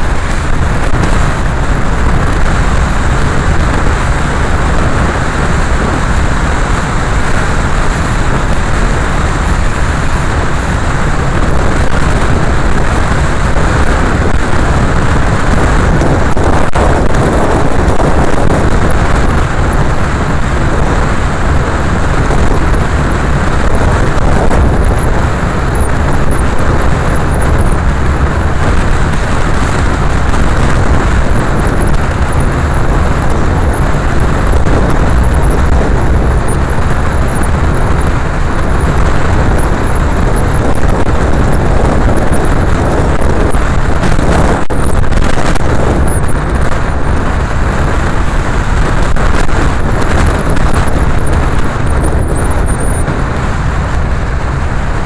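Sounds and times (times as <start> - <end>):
car engine running: 0.0 - 55.0
tyres on wet road: 0.0 - 55.0.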